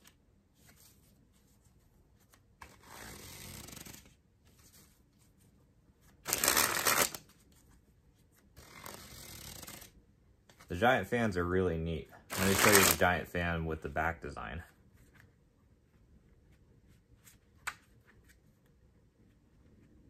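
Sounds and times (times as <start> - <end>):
playing cards rustling: 0.0 - 10.8, 12.2 - 13.1
loud rush of cards: 6.3 - 7.2, 12.3 - 13.0.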